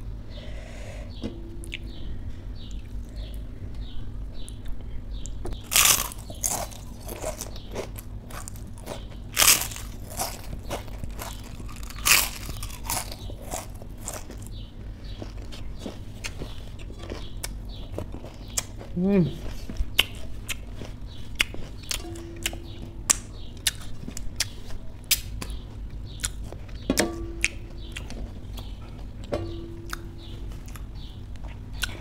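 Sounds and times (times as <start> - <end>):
chewing clicks: 4.4 - 18.9, 19.9 - 26.8, 27.4 - 29.3
person crunching crisp food: 5.6 - 26.8.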